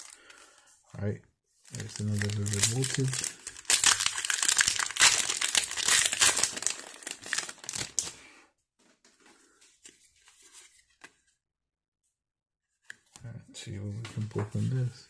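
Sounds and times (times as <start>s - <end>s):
foil wrapper tearing and crinkling: 1.7s - 8.2s.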